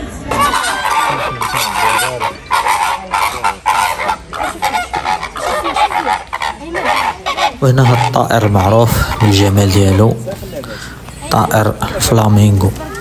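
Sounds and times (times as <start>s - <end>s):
flamingos honking: 0.1s - 11.0s.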